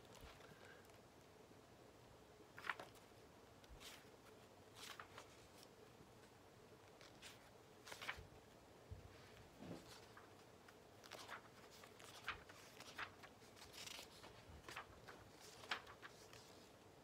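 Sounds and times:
book pages flicking: 2.6s - 3.0s, 11.0s - 16.4s.

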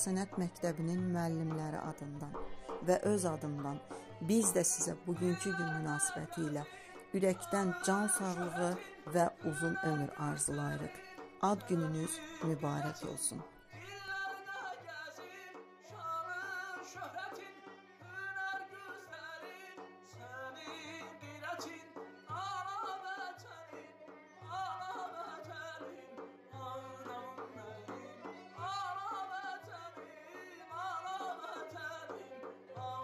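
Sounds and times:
plucked lute and bowed fiddle: 0.0s - 13.5s
frame drum strokes: 0.0s - 17.8s.

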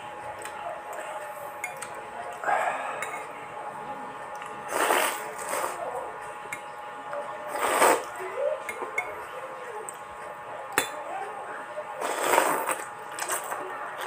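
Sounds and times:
noodles being slurped: 4.6s - 5.8s, 7.5s - 8.2s, 12.0s - 14.0s.

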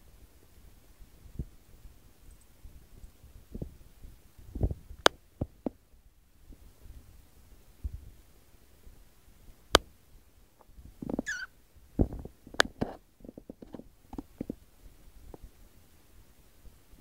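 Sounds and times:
short high squeak: 11.2s - 11.5s.

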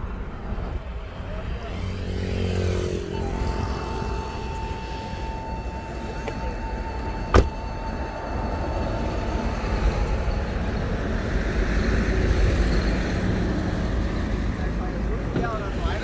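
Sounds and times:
high electronic tone: 2.9s - 10.4s
car door slamming: 7.3s - 7.6s.

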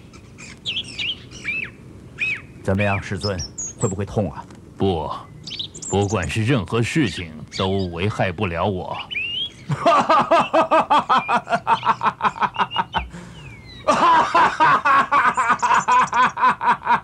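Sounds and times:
man laughing hard: 9.7s - 17.0s.

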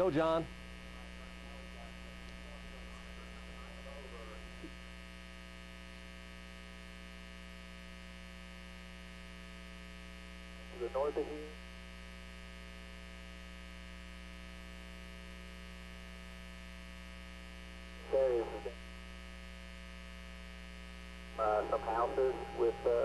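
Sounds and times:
person speaking: 0.0s - 4.7s
electrical hum and buzz: 0.0s - 23.0s.

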